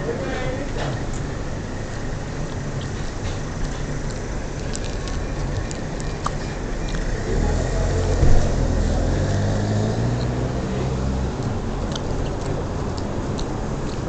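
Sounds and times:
car engine rumbling: 0.0s - 14.0s
street traffic: 0.0s - 14.0s
thump: 8.2s - 8.6s.

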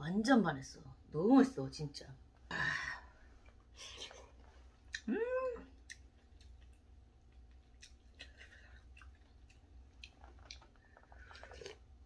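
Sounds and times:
sipping and chewing: 5.8s - 12.0s.

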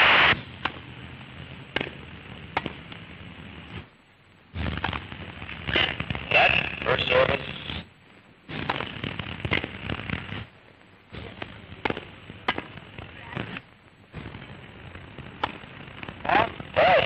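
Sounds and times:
old film soundtrack hiss: 0.0s - 17.0s
tennis racket hitting ball: 11.8s - 12.8s.

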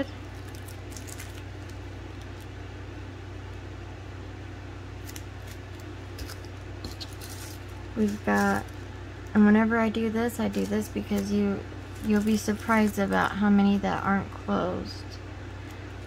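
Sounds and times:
steady low hum: 0.0s - 16.0s
plastic bag crinkling: 0.1s - 2.6s, 5.0s - 14.5s.

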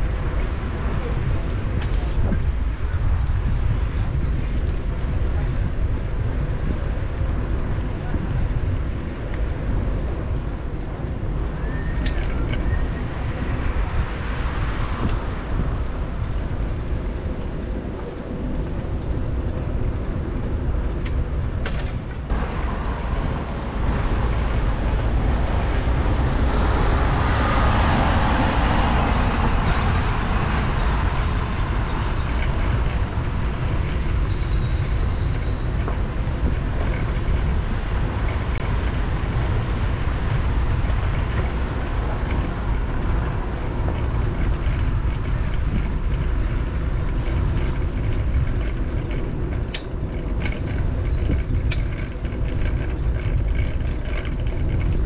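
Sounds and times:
city street traffic rumble: 0.0s - 55.0s
vehicle passing: 22.3s - 34.1s.

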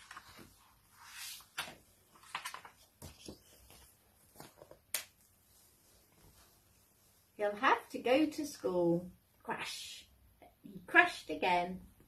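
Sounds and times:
book pages rustling: 0.0s - 6.7s.

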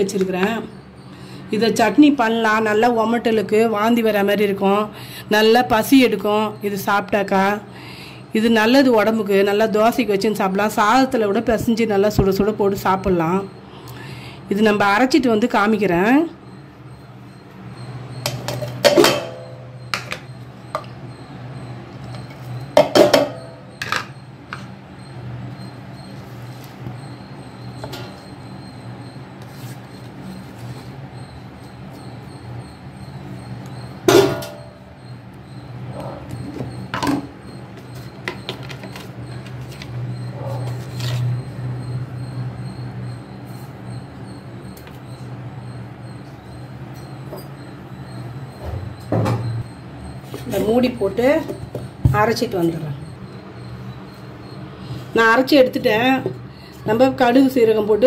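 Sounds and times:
steady low hum: 0.0s - 58.0s
knocks and clinks on metal jar: 18.2s - 20.2s, 22.8s - 24.1s, 34.1s - 34.6s.

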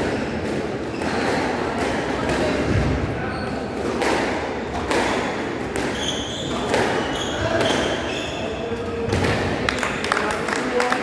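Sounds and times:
squash ball struck by rackets: 3.7s - 8.0s, 9.0s - 9.7s
shoes squeaking on wooden floor: 5.9s - 8.6s.

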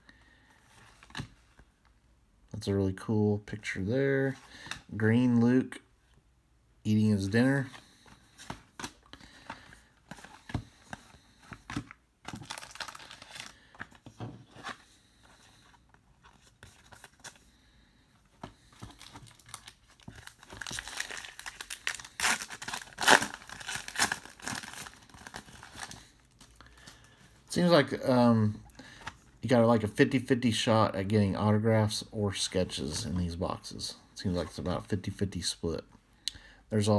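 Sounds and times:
plastic wrapper crinkling and tearing: 12.3s - 13.9s, 18.8s - 26.9s.

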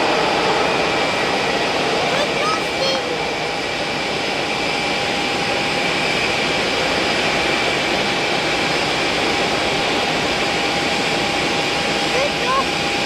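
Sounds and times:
jet engine whining tones: 0.0s - 13.0s
jet engines rumbling: 0.0s - 13.0s.

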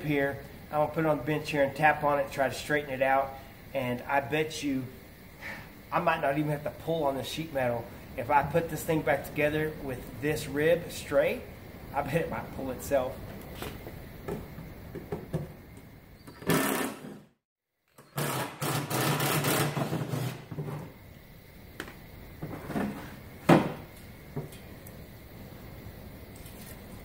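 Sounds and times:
impact driver running: 18.1s - 20.4s.

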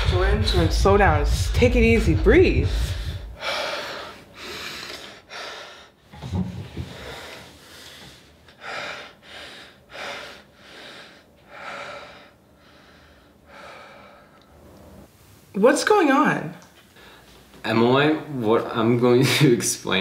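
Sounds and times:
man breathing hard: 2.6s - 14.6s.

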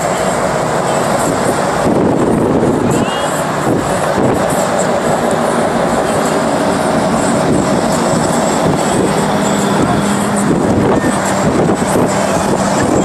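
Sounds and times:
cars and trucks driving past: 0.0s - 13.0s.

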